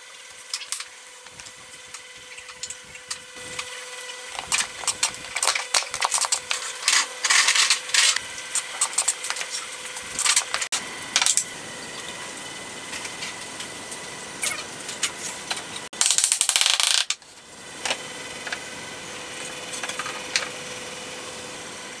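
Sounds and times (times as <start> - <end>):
wood and metal pieces clicking: 16.0 - 17.2.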